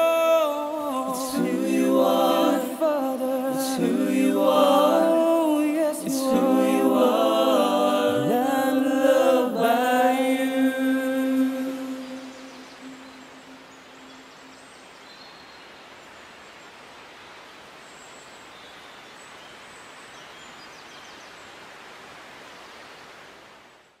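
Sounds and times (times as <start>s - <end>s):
held sung note: 0.0s - 14.3s
outdoor ambient hiss: 0.0s - 24.0s
faint bird chirps: 11.7s - 21.6s.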